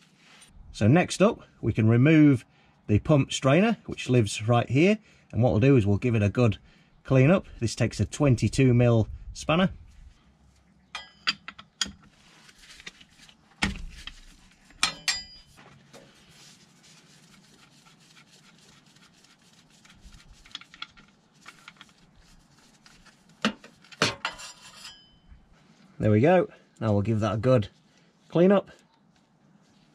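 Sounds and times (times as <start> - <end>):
ringing metallic clinks: 11.0 - 11.5, 14.8 - 15.5
metal spanner clanking: 11.0 - 12.0, 14.8 - 15.5.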